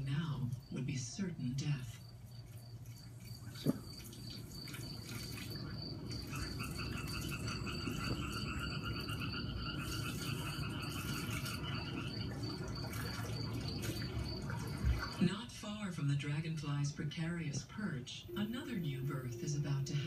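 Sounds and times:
insects chirping: 0.0s - 15.3s.

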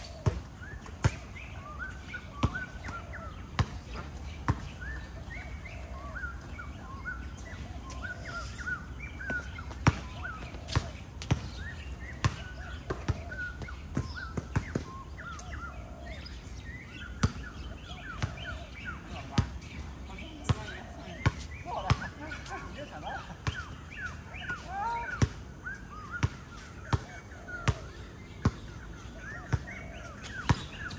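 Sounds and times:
basketball bouncing on court: 2.4s - 3.0s, 3.6s - 4.7s, 9.3s - 10.2s, 10.8s - 11.5s, 12.2s - 15.0s, 26.2s - 28.6s, 30.5s - 30.9s
sneakers squeaking on floor: 29.3s - 30.9s.

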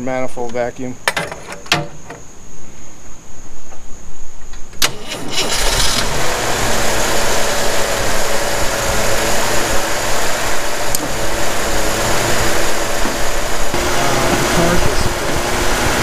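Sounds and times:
car engine idling: 4.8s - 16.0s.

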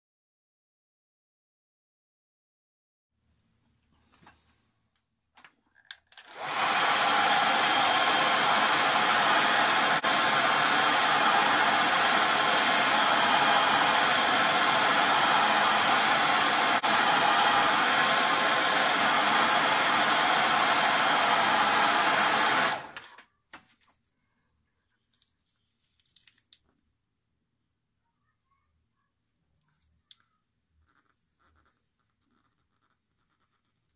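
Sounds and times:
hairdryer blowing: 6.2s - 23.2s.

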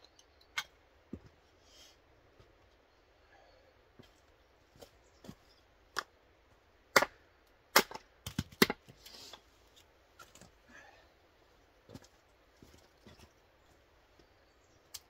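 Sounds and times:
hatchet chopping wood: 6.9s - 8.8s.

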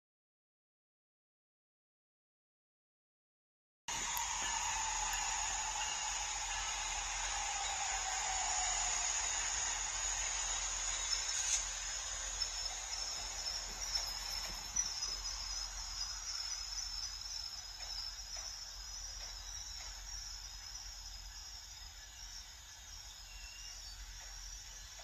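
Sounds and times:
train wheels hissing on rails: 3.9s - 25.0s.

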